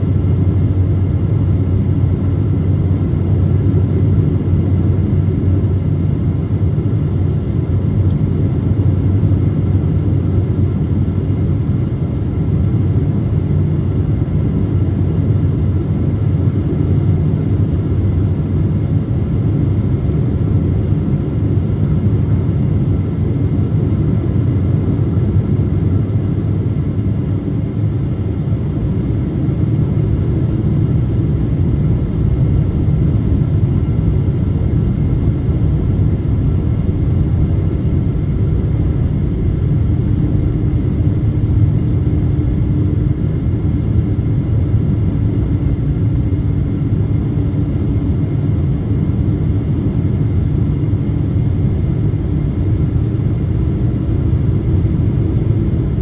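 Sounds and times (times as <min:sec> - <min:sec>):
airplane cabin roar: 0:00.0 - 0:56.0
faint hum: 0:00.0 - 0:56.0.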